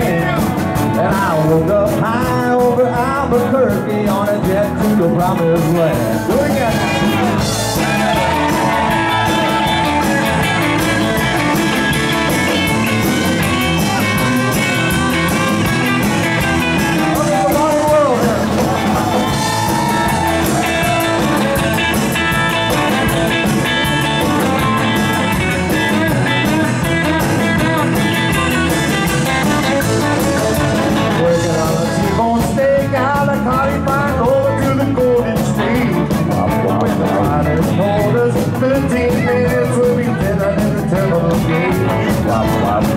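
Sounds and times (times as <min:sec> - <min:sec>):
men singing: 0:00.0 - 0:10.3, 0:31.1 - 0:42.9
live band playing: 0:00.0 - 0:42.9.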